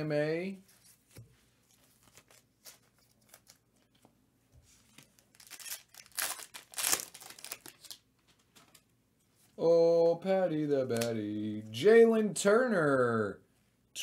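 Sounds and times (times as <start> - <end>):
foil wrapper tearing and crinkling: 2.0 - 3.7, 5.2 - 8.0.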